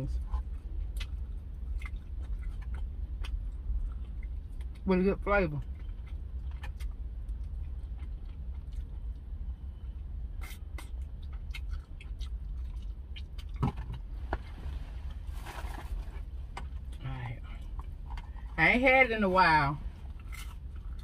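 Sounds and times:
low steady hum: 0.0s - 21.0s
chewing and wet mouth clicks: 0.4s - 4.9s, 5.6s - 13.7s
rustling in a foil-lined box: 14.4s - 16.5s.

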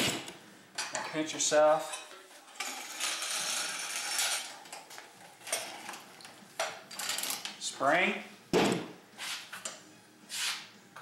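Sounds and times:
metal parts sliding: 1.9s - 4.8s.

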